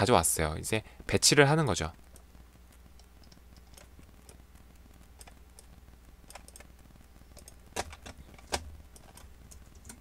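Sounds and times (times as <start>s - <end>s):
computer mouse clicks: 3.0s - 4.4s, 5.2s - 5.7s, 6.3s - 6.7s, 7.3s - 10.0s.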